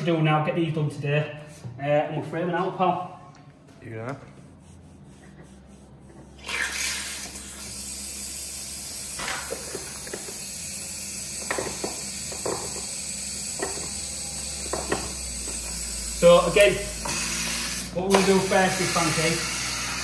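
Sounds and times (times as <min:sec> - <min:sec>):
water hissing through valve: 0:06.4 - 0:20.0.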